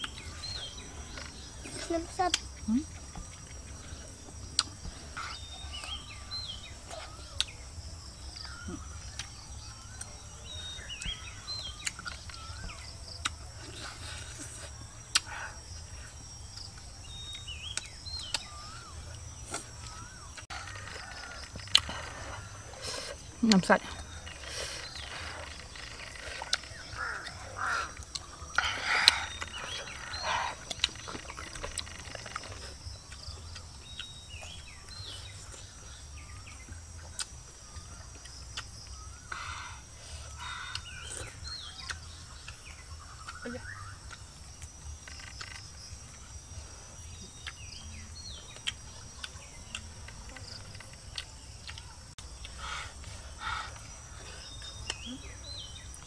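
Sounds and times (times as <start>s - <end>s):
animal or bird calls: 18.2s - 33.2s.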